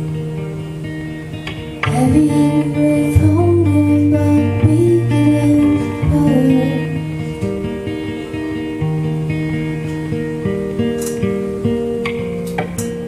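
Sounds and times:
strummed guitar chords: 0.0s - 13.0s
woman singing slow melody: 1.8s - 7.5s.

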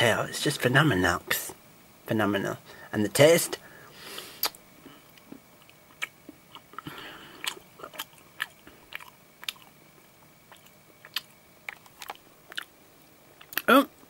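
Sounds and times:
mouth clicks and crunches: 4.2s - 14.0s
person chewing chocolate: 4.4s - 14.0s.

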